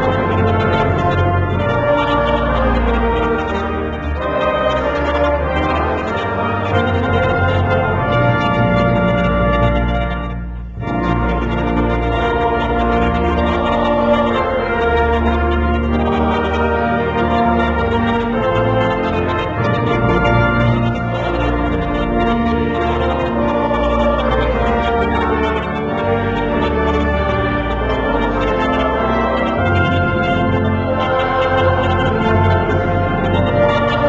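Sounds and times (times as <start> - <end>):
organ and brass chords: 0.0 - 34.0.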